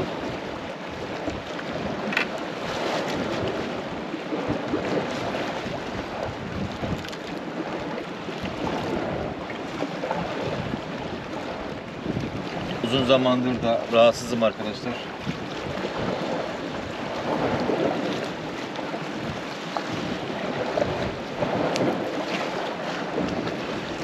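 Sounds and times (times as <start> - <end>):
waves washing against rocks: 0.0 - 24.0
wind buffeting microphone: 0.0 - 24.0.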